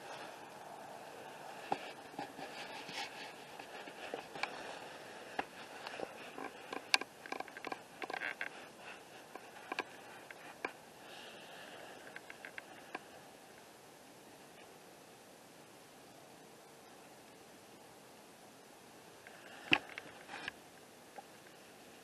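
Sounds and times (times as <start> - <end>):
rustling in dry grass and leaves: 0.0 - 13.8, 19.1 - 22.0.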